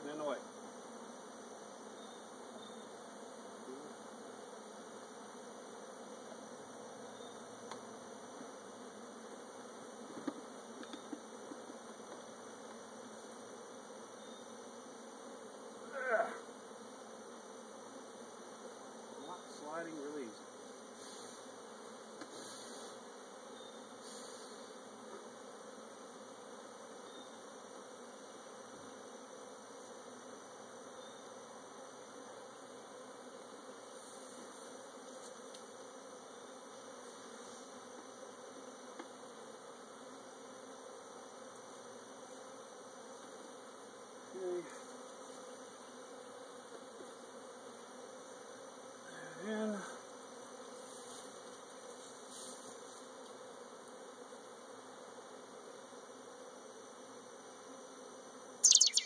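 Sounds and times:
honey bees buzzing: 0.0s - 59.0s.

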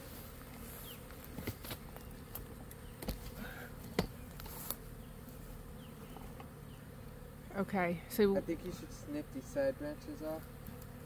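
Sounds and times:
leafy branch clicks and rustles: 0.0s - 4.9s
bee swarm buzzing: 0.0s - 11.0s.

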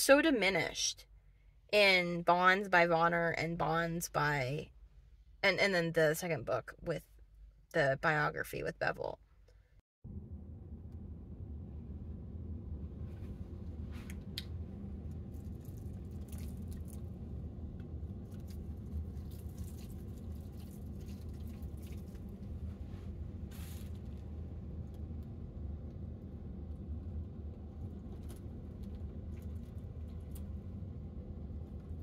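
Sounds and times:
steady low hum: 0.0s - 32.0s
soil crackling faintly: 13.0s - 32.0s
water pouring onto soil: 15.3s - 17.1s.

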